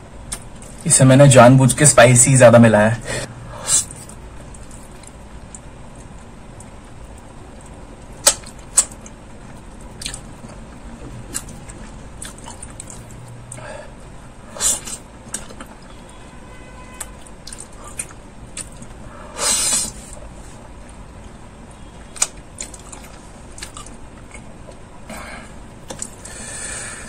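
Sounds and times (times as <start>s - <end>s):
wet chewing: 3.9s - 13.6s, 14.6s - 16.1s, 17.0s - 19.0s, 22.1s - 24.9s.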